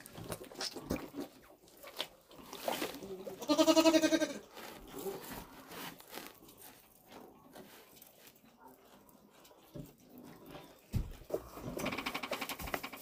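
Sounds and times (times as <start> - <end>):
faint rustling in straw: 1.6 - 13.0
calf bleating: 3.3 - 4.5.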